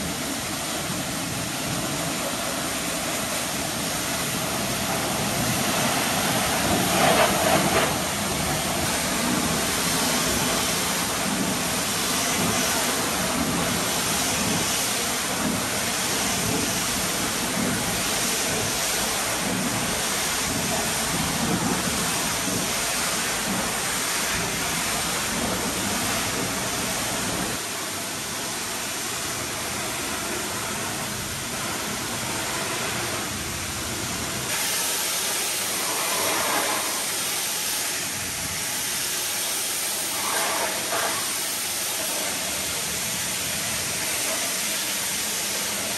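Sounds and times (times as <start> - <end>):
pressure washer spraying water: 0.0 - 28.8, 29.5 - 45.9.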